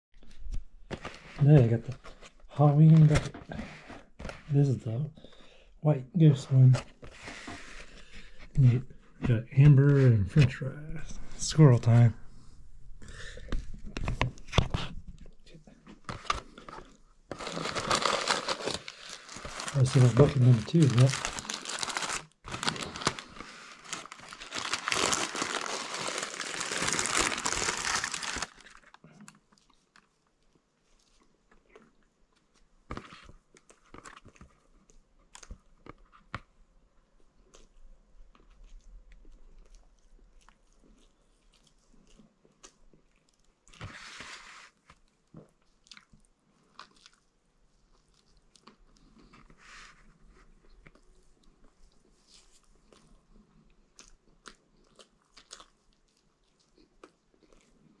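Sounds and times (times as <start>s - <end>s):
paper wrapper crinkling: 15.9s - 30.1s
small crunches and bites: 16.4s - 29.8s, 53.9s - 58.0s
man chewing food: 37.3s - 43.8s, 45.0s - 49.6s, 50.5s - 58.0s.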